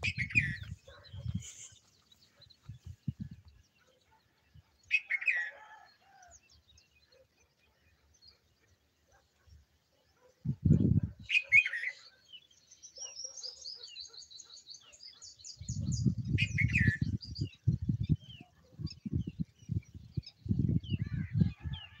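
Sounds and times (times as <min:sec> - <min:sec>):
wind buffeting microphone: 0:00.0 - 0:03.7, 0:10.4 - 0:11.4, 0:15.4 - 0:22.0
birds singing and calling: 0:00.0 - 0:22.0.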